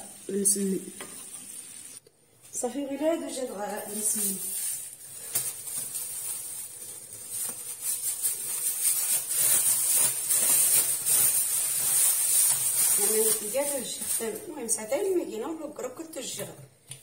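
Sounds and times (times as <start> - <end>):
plastic bag crinkling: 3.3 - 15.3.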